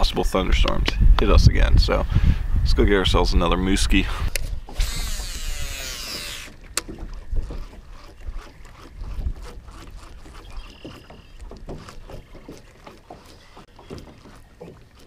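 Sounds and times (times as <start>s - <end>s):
fishing reel whirring: 4.7s - 6.9s
small ticks and knocks: 6.4s - 15.0s.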